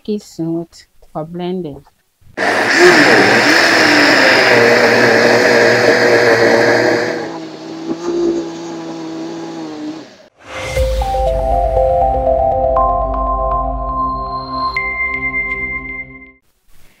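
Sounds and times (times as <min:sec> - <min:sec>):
blender grinding: 0:02.4 - 0:10.3.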